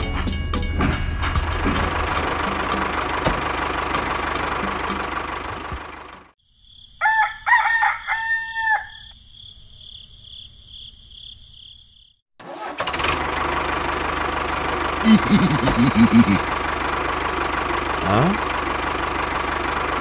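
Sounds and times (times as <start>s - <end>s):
rooster crowing: 7.0s - 9.2s
small motor running: 17.9s - 20.0s.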